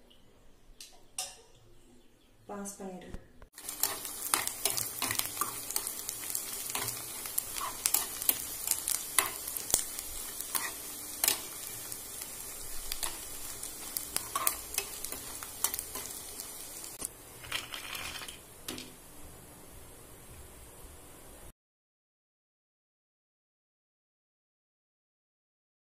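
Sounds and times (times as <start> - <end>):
food sizzling in hot oil: 3.6 - 19.3
metal spoon scraping pan: 3.8 - 8.4, 10.4 - 11.6, 14.0 - 16.2.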